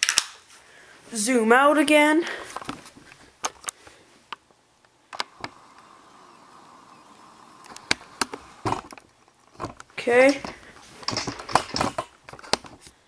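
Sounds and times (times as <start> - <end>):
camcorder zoom motor whine: 5.1 - 8.9.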